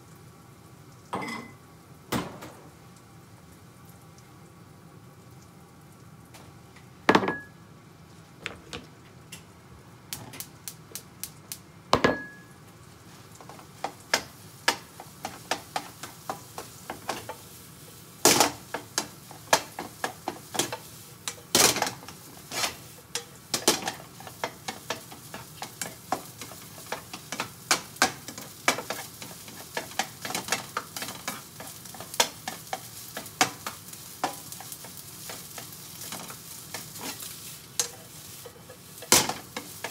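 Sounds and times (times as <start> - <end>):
rice sizzling in a pan: 0.0 - 8.5, 9.3 - 39.9
metal spatula scraping a pan: 21.6 - 24.0, 36.0 - 39.9.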